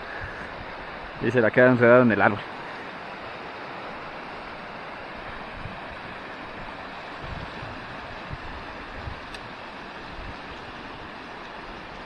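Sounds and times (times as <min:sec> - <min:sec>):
rocky stream rushing: 0:00.0 - 0:12.0
wind thumps on microphone: 0:07.2 - 0:09.5.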